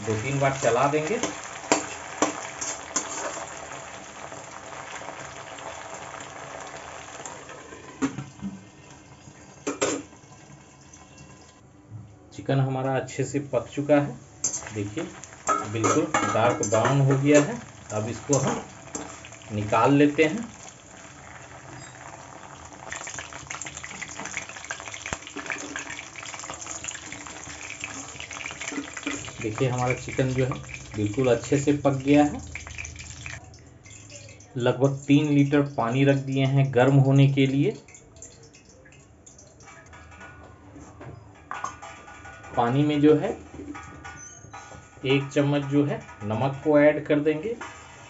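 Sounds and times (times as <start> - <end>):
chicken sizzling in hot oil: 0.0 - 11.6, 13.5 - 36.6.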